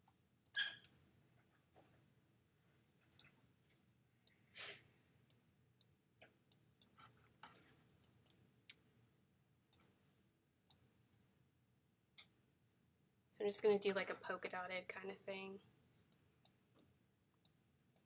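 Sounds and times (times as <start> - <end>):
soft exhale: 4.5 - 4.9.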